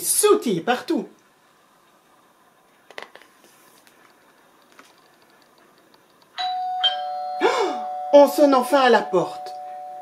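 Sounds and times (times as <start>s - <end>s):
book page turning: 3.1s - 4.1s.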